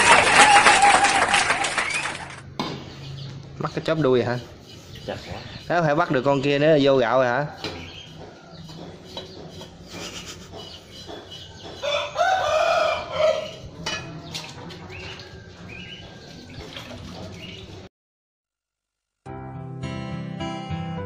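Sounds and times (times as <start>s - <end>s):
rooster crowing: 0.0s - 2.3s, 11.8s - 13.7s
chicken clucking: 7.4s - 16.5s.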